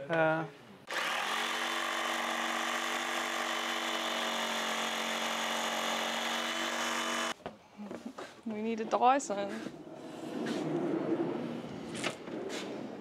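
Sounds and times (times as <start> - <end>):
electric jigsaw sawing wood: 0.9 - 7.4.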